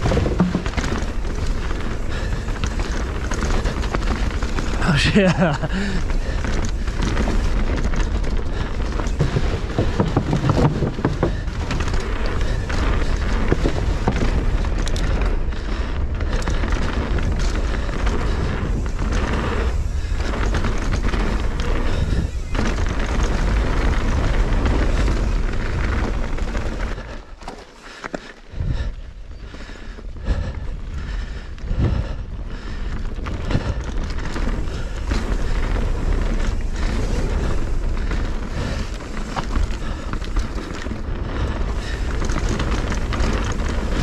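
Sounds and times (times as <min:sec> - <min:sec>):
heavy low rumble: 0:00.0 - 0:27.0
wind buffeting microphone: 0:00.0 - 0:27.1, 0:28.5 - 0:44.0
bike tyre noise on dirt: 0:00.0 - 0:44.0.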